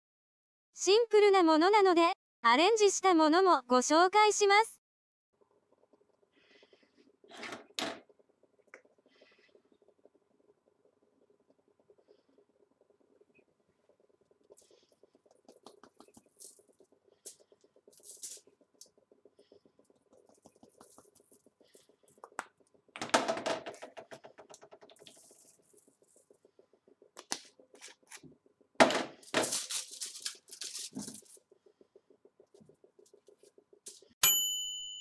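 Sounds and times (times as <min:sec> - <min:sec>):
aluminium foil crinkling: 0:16.0 - 0:18.9, 0:29.2 - 0:31.5.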